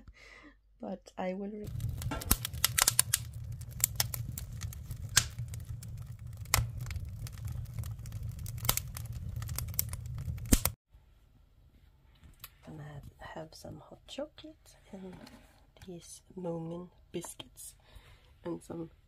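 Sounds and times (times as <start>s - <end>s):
low steady fire rumble: 1.6s - 10.8s
wood fire crackling: 1.6s - 10.8s.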